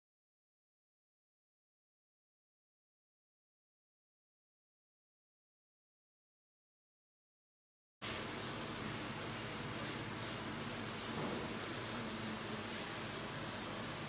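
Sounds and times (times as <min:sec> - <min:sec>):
food sizzling on a grill pan: 0:08.0 - 0:14.0.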